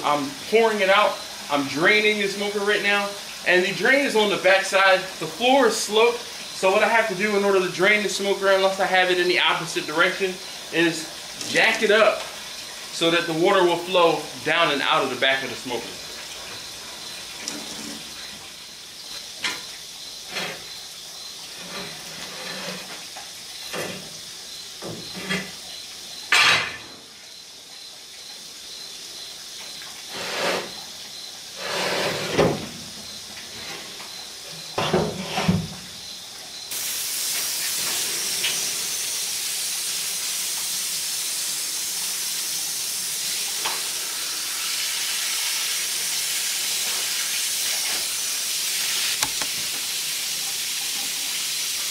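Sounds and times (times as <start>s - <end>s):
hose spraying water: 0.0s - 27.2s, 28.0s - 51.9s.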